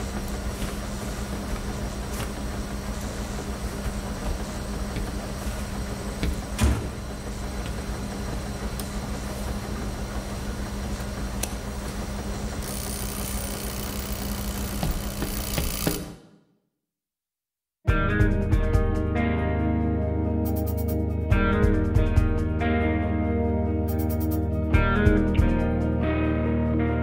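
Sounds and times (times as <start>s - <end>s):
washing machines humming: 0.0s - 16.3s.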